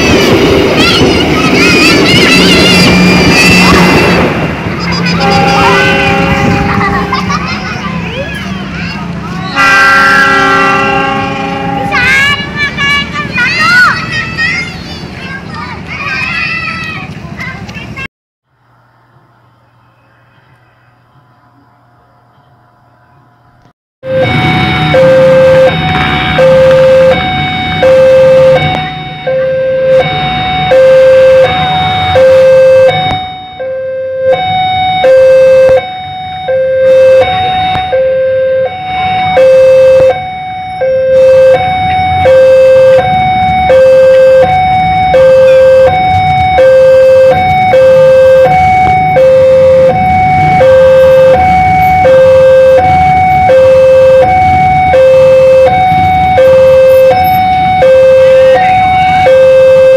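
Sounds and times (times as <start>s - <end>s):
level crossing two-tone alarm: 24.0s - 59.9s.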